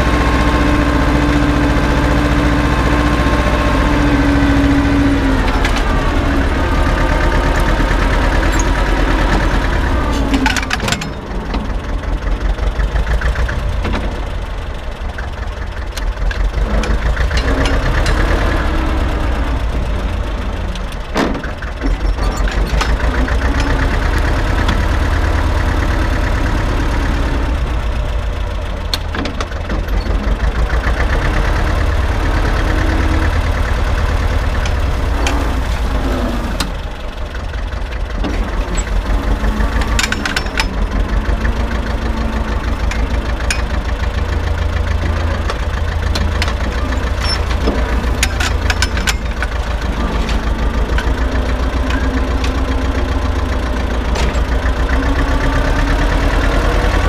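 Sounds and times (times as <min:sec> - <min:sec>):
tractor engine droning: 0:00.0 - 0:57.0
sharp metal clanks: 0:39.7 - 0:41.1, 0:42.7 - 0:43.9, 0:46.1 - 0:51.2.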